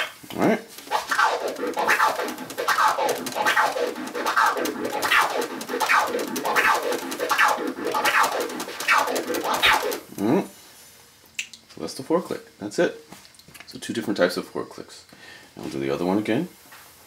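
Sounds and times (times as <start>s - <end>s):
record scratching on turntable: 0.0s - 10.4s.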